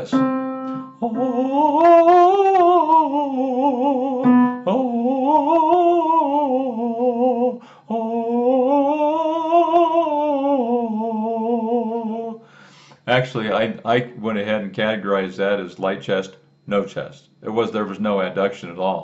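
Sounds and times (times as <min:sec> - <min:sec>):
piano note: 0:00.0 - 0:02.2, 0:04.2 - 0:04.8
man singing in falsetto: 0:00.0 - 0:12.4.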